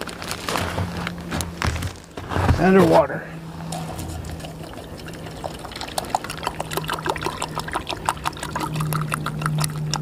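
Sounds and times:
water poured into a metal cup: 0:03.7 - 0:10.0.

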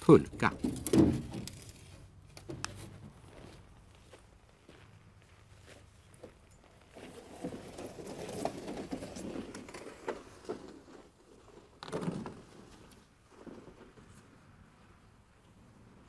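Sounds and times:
plastic sled scraping over snow: 0:06.8 - 0:14.4.

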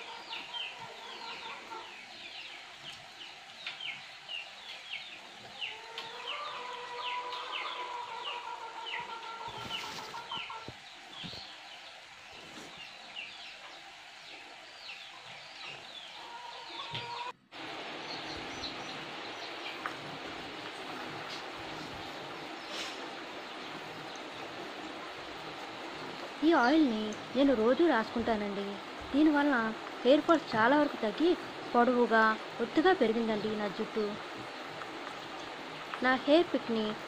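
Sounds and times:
birds chirping: 0:00.0 - 0:37.0
steady hiss: 0:17.5 - 0:37.0.

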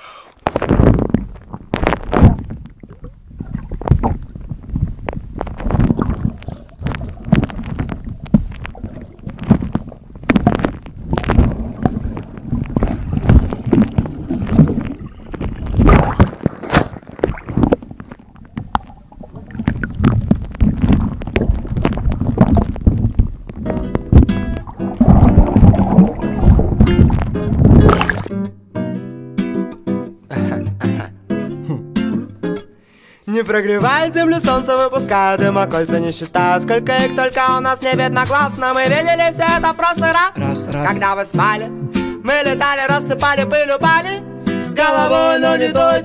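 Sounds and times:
water churning underwater: 0:00.2 - 0:28.3
water thumps and surges: 0:00.4 - 0:28.3.

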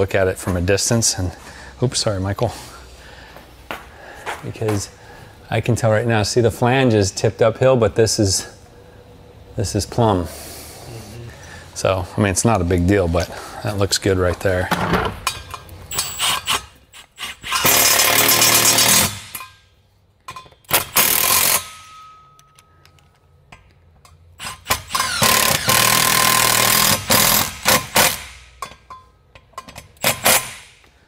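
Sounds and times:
handheld power tool running: 0:24.4 - 0:28.4.

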